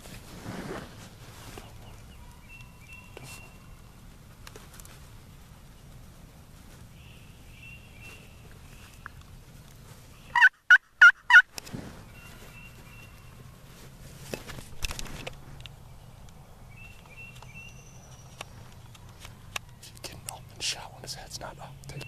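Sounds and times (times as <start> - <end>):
rustling: 0.0 - 10.4, 11.5 - 20.3
faint songbird chirps: 1.4 - 4.0, 6.9 - 9.3, 12.0 - 13.7, 15.6 - 22.0
turkey gobbling: 10.3 - 11.5.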